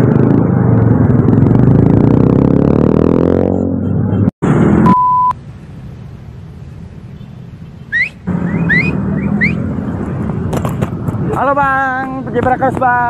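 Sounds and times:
street traffic with motorcycles: 0.0 - 13.0
short electronic beep: 3.5 - 5.4.

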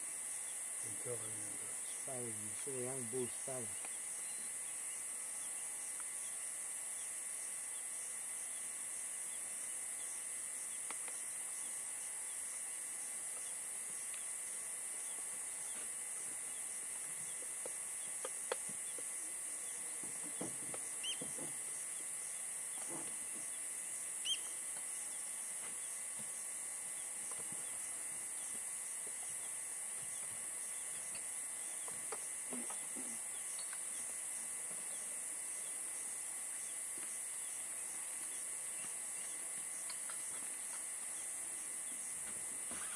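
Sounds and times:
high-pitched hiss: 0.0 - 42.9
faint chirps and clicks: 3.7 - 6.4, 10.0 - 12.5, 13.3 - 15.9, 17.2 - 23.6, 24.2 - 26.4, 27.0 - 34.2, 38.2 - 42.2.

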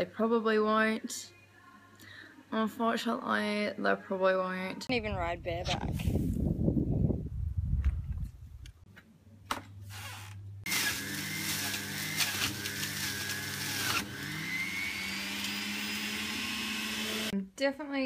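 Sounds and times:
juicer motor whining: 10.7 - 17.3.

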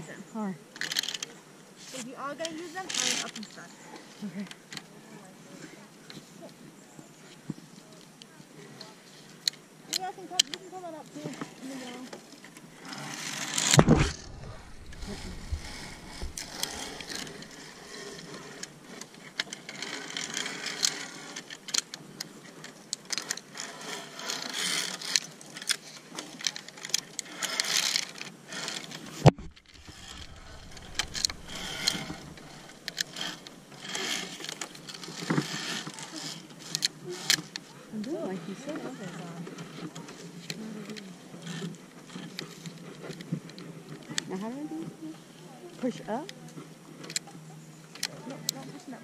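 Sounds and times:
zip line trolley rattling on cable: 0.8 - 1.4, 2.4 - 3.7, 11.6 - 44.4.

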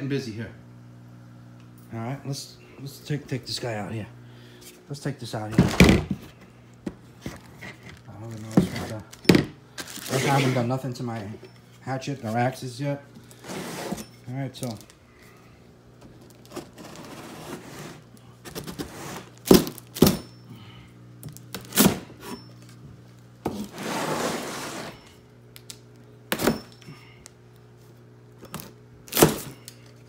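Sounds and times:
cardboard tearing and scraping: 9.8 - 10.7, 13.3 - 14.0, 16.4 - 20.1.

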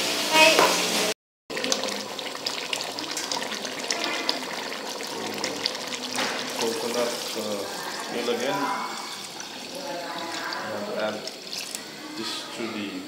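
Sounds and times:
curry bubbling in a metal pot: 1.5 - 12.1.

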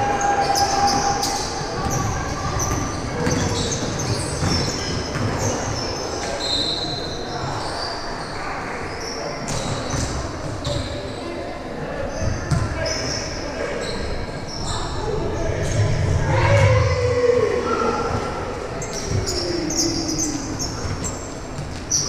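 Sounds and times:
voices echoing: 0.0 - 22.0
sneakers squeaking on court: 0.9 - 11.0
basketball bouncing: 2.7 - 5.4.

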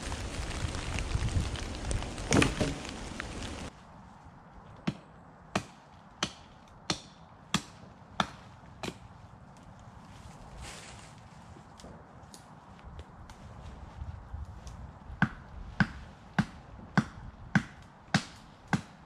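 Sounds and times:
rain hissing: 0.0 - 3.7
logs clattering onto woodpile: 2.2 - 3.7.

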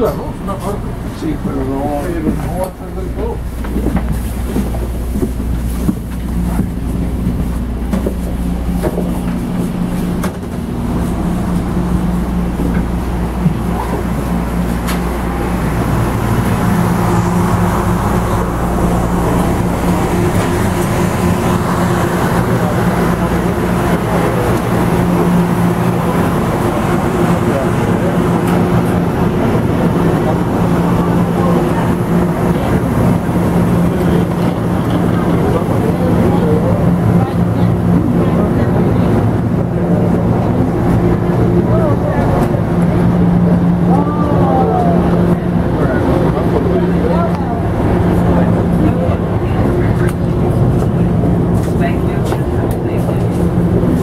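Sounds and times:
footsteps of passengers walking: 0.0 - 54.0
train car hum: 0.0 - 54.0.

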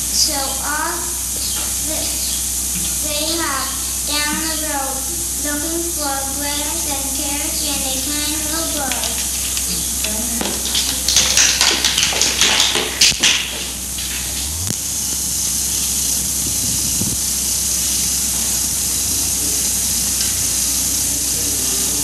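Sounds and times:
low hum: 0.0 - 22.0
old film recording hiss: 0.0 - 22.0
crackles and pops: 8.5 - 18.1.

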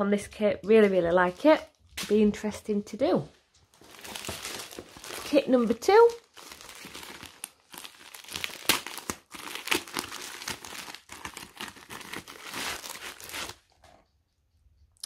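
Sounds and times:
plastic packaging crinkling: 3.6 - 13.7.

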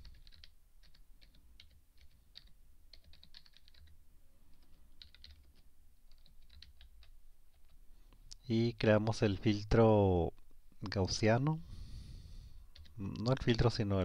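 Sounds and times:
faint keyboard typing: 0.0 - 8.4, 12.7 - 13.9.

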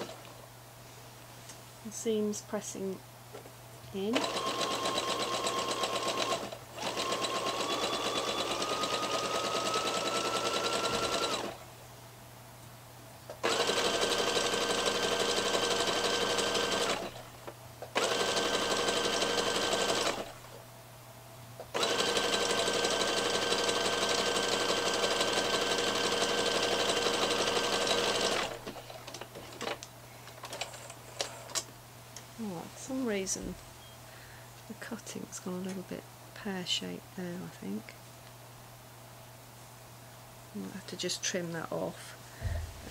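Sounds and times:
sewing machine stitching: 4.1 - 11.6, 13.4 - 17.3, 17.9 - 20.4, 21.7 - 28.8.

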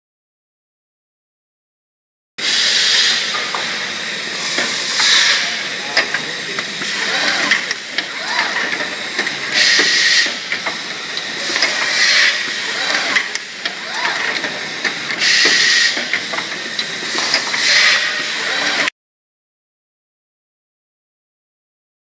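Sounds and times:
pneumatic air hiss: 2.4 - 18.9
whines of moving parts: 2.4 - 18.9.

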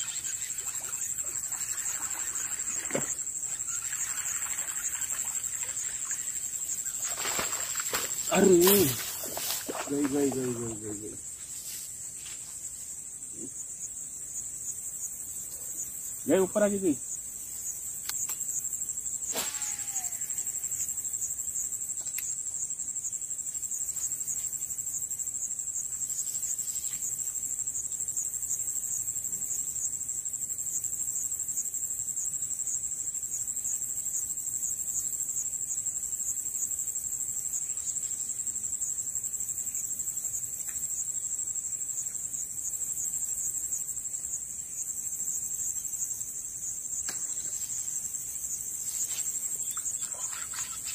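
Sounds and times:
insects droning: 0.0 - 50.9
sharp click: 18.0 - 18.4.

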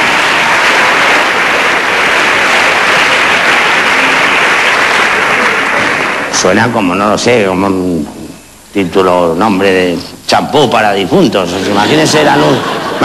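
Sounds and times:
audience applauding: 0.0 - 6.6.

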